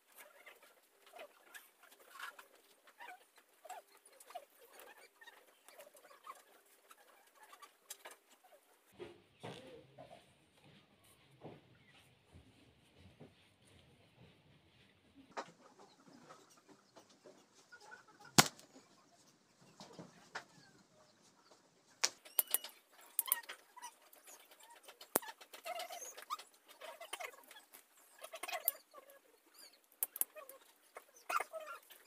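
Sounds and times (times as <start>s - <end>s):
sharp clicks: 18.4s - 18.7s, 22.0s - 23.5s, 30.0s - 30.4s.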